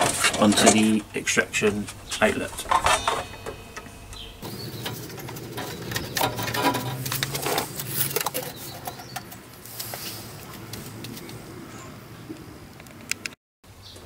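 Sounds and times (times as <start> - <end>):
plastic hose scraping: 0.0 - 3.3, 4.8 - 11.4.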